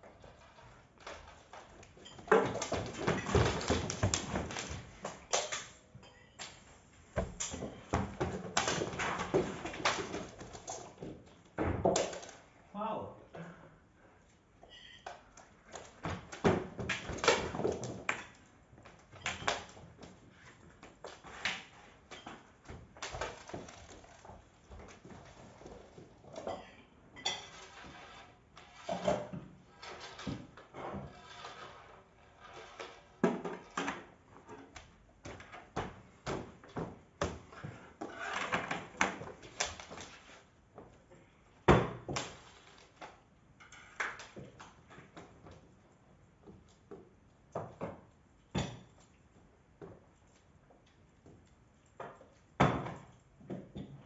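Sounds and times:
knocks and thumps on wooden floor: 1.0 - 5.2, 7.2 - 12.1.

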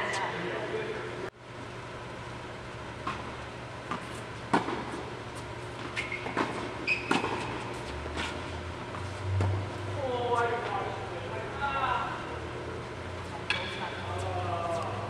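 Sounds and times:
steady low hum: 0.0 - 15.0
tennis balls struck by rackets: 3.0 - 5.1, 5.8 - 7.7, 13.4 - 14.0
court shoes squeaking: 3.0 - 9.6, 13.2 - 15.0.

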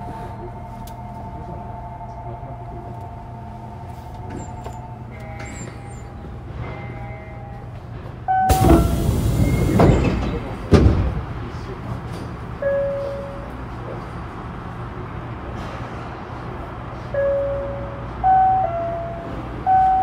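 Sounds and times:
train running with low hum: 0.0 - 20.0.

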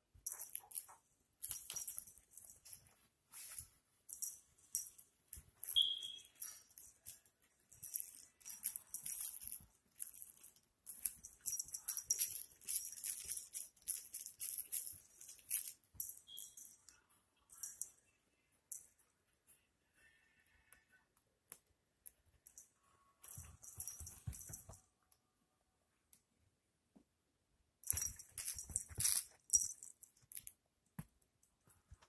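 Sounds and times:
toy rattling and rustling: 0.2 - 16.9, 17.5 - 18.0, 22.4 - 24.8, 27.8 - 30.6.

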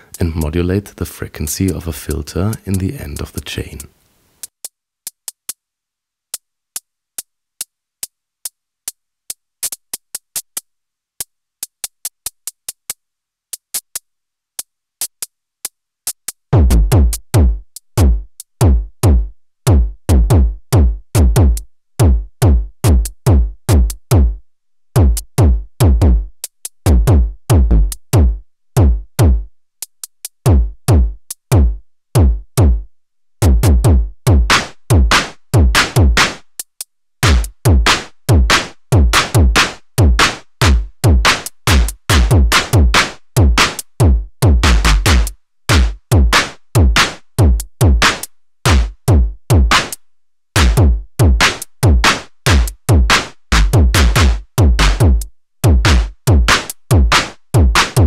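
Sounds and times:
closed hi-hat ticks: 0.0 - 5.6, 51.5 - 51.8
deep electronic bass drum: 16.6 - 24.4, 25.0 - 26.3, 26.9 - 29.5, 30.5 - 32.8, 33.4 - 36.2, 37.2 - 48.0, 52.9 - 56.5.

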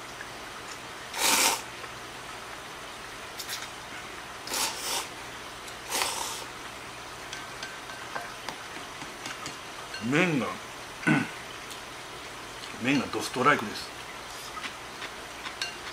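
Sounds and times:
person slurping noodles: 1.2 - 1.7, 4.5 - 5.1, 5.9 - 6.5.

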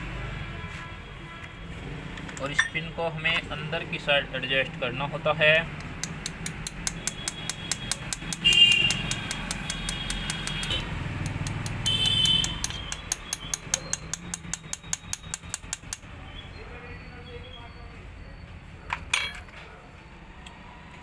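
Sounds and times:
rapid metallic tapping: 5.8 - 16.1.

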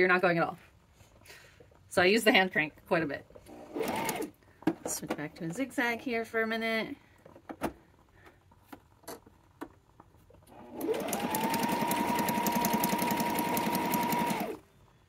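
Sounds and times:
sewing machine stitching: 3.4 - 4.4, 10.5 - 14.6.

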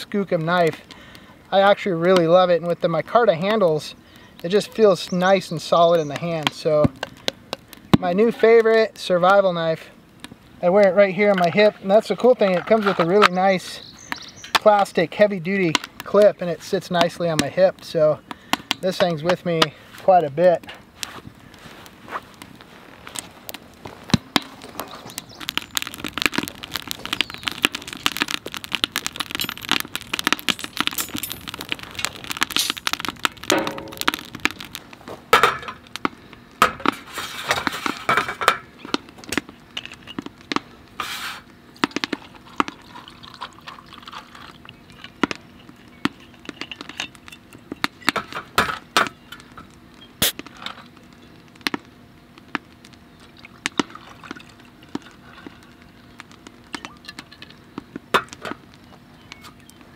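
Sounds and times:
wood fire crackling: 0.0 - 59.9
glass bottles and mug clinking: 42.5 - 45.2.

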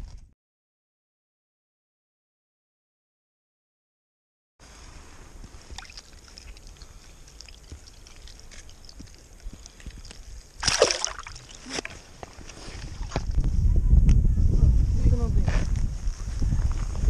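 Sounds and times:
water sloshing and splashing: 5.0 - 13.2
water dripping: 5.4 - 12.0.

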